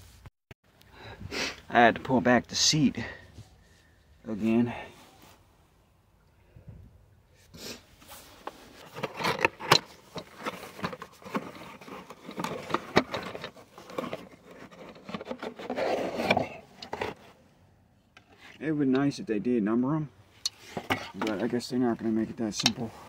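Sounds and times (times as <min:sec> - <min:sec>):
cardboard box scrapes and rubs: 0:10.2 - 0:17.4.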